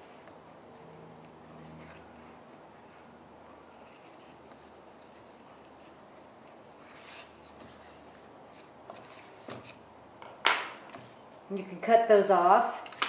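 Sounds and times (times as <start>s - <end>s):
needle and yarn scratching paper: 0.0s - 9.8s
soft rustle: 0.0s - 9.8s.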